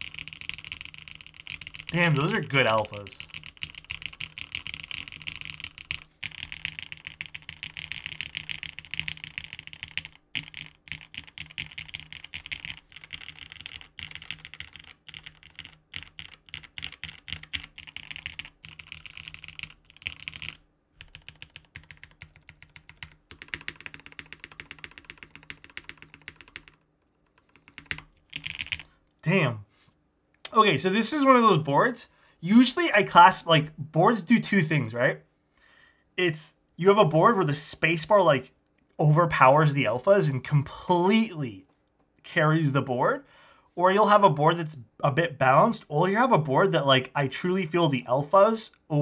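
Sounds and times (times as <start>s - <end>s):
mechanical keyboard typing: 0.0s - 28.9s.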